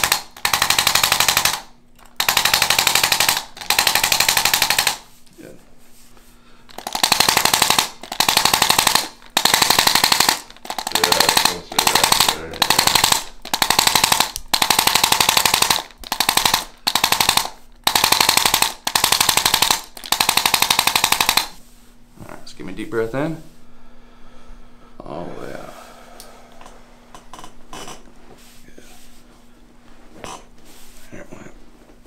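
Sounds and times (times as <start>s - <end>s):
electric instrument rapid tapping: 0.0s - 1.6s, 6.7s - 21.5s.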